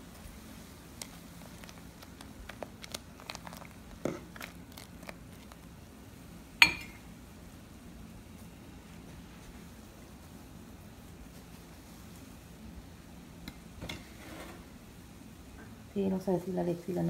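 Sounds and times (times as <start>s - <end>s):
boiling broth: 0.0s - 16.7s
ladle stirring in metal pot: 1.0s - 5.7s.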